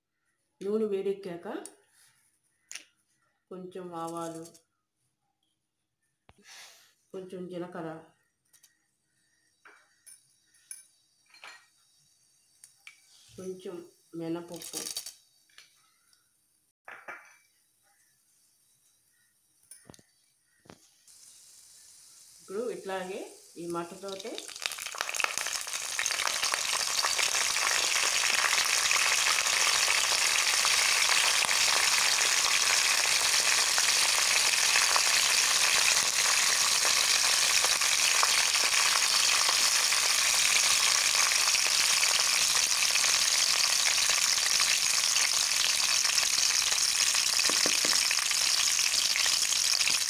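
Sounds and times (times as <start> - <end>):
spices sizzling in hot oil: 9.4 - 16.1, 17.4 - 50.0.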